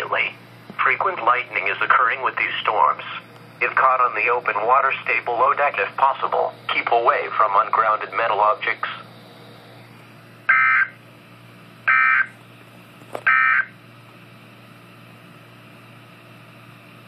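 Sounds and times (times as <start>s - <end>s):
steady low hum: 0.0s - 17.0s
data tone bursts: 10.5s - 11.0s, 11.9s - 12.3s.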